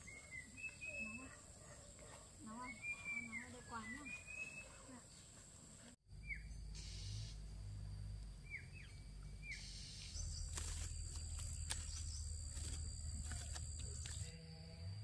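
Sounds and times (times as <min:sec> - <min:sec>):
high insect drone: 0:06.1 - 0:15.0
small bird chirping: 0:08.3 - 0:14.3.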